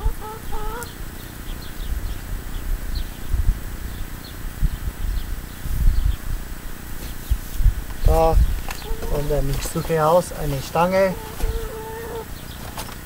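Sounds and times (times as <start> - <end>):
insect buzzing: 5.5 - 12.5.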